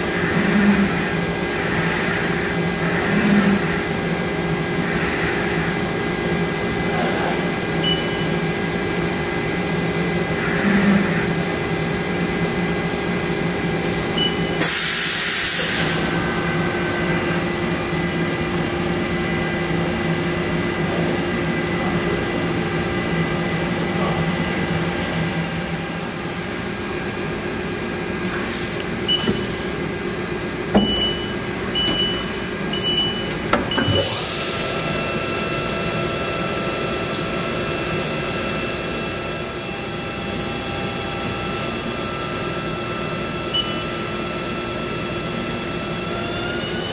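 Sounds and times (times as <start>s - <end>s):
lathe machine hum: 0.0s - 46.9s
hiss burst: 14.6s - 16.1s.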